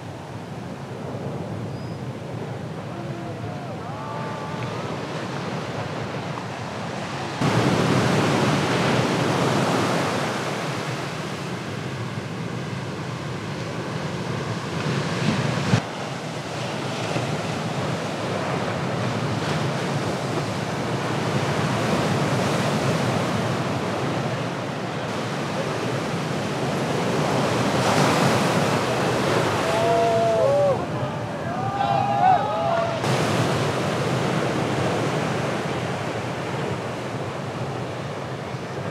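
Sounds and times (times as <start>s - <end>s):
ocean waves breaking on reef: 0.0s - 38.9s.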